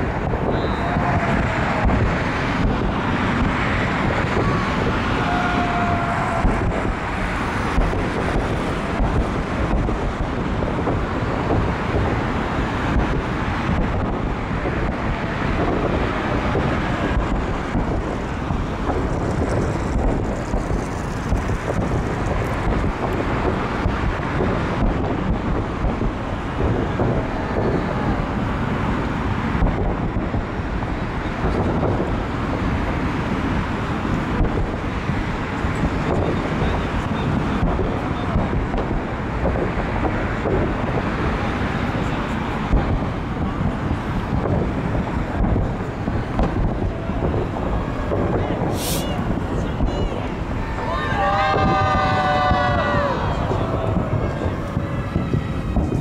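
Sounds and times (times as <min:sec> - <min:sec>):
fireworks bursts and crackles: 0:00.0 - 0:56.0
fireworks whistles: 0:00.4 - 0:02.0, 0:48.1 - 0:50.6.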